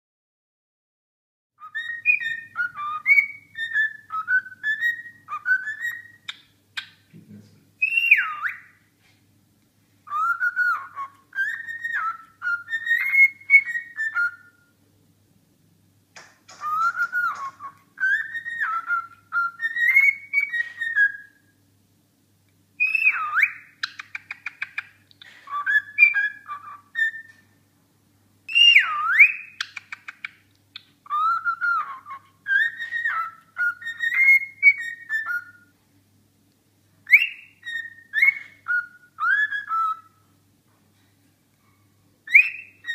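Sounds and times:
cockatiel whistling: 1.6 - 7.0, 7.8 - 8.8, 10.0 - 14.7, 16.2 - 21.5, 22.8 - 27.4, 28.5 - 35.7, 37.0 - 40.3, 42.2 - 42.9.

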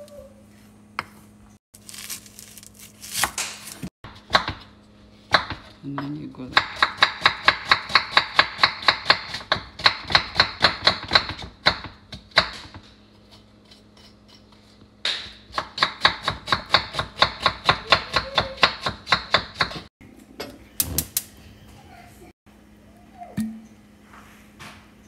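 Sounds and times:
knife chopping on wooden board: 3.1 - 4.7, 5.3 - 12.8, 15.1 - 19.9.

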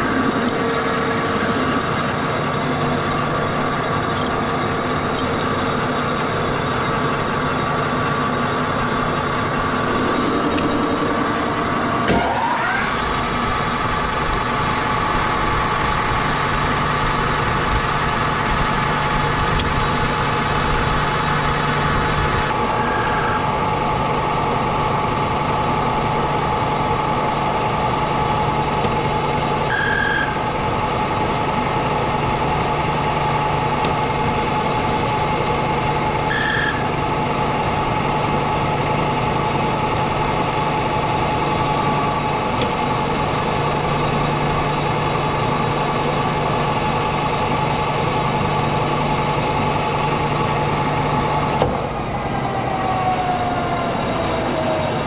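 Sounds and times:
lathe hum and whine: 0.0 - 55.0
high squeals: 9.8 - 15.8.

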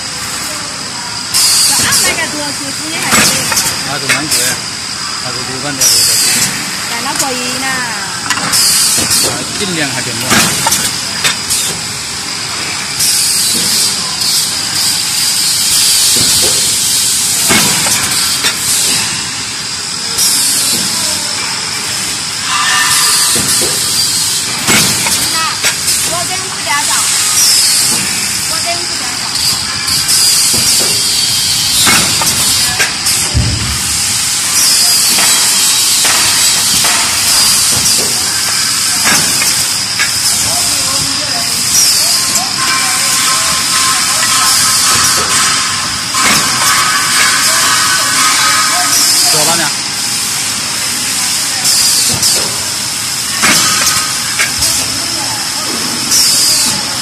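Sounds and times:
compressed air hissing: 0.1 - 57.0
machine mechanism knocks: 29.4 - 41.1.

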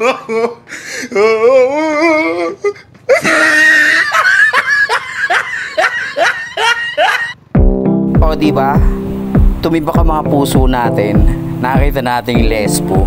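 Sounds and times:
person laughing: 0.0 - 7.4.

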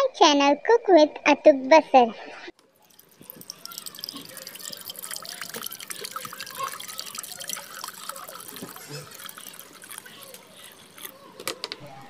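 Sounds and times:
water pouring into metal pot: 2.6 - 11.5.

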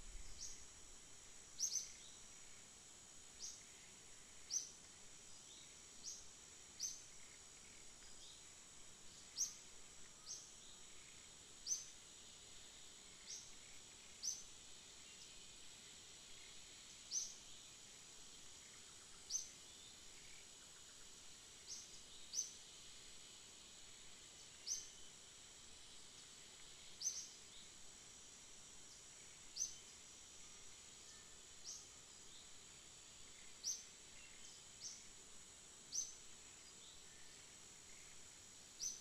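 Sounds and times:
high insect drone: 0.0 - 39.0.

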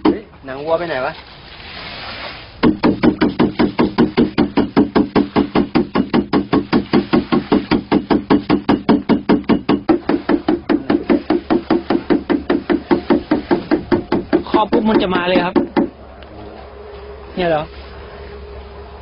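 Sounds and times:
knocking on plastic jug: 2.6 - 15.9.

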